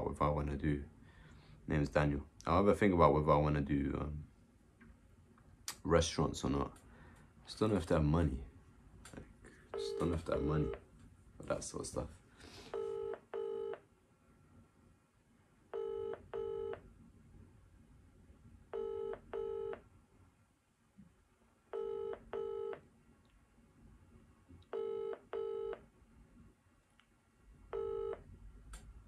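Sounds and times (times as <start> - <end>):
telephone ringback tone: 9.8 - 10.7, 12.8 - 13.8, 15.8 - 16.8, 18.8 - 19.8, 21.8 - 22.8, 24.8 - 25.8, 27.7 - 28.2.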